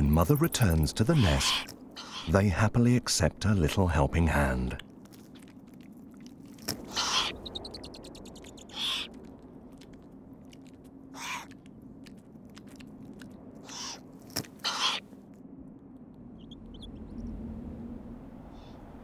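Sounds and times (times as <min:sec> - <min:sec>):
owl chicks rasping begging calls: 0:00.0 - 0:02.4, 0:06.8 - 0:09.2, 0:11.1 - 0:11.6, 0:13.6 - 0:15.1, 0:16.4 - 0:17.2.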